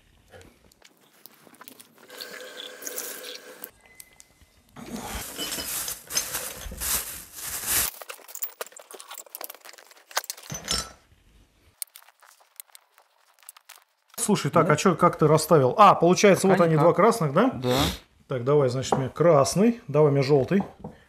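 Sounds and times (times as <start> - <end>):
liquid pouring: 0.8 - 3.7.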